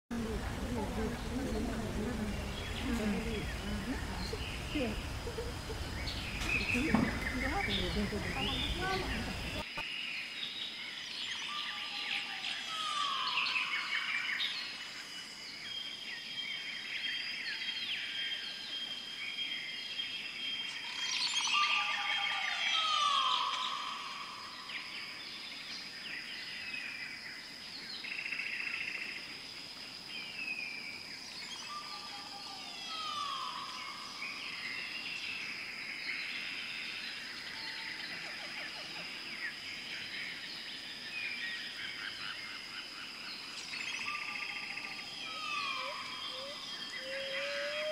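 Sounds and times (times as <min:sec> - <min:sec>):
birds chirping and whistling: 0:01.0 - 0:09.7, 0:43.5 - 0:47.9.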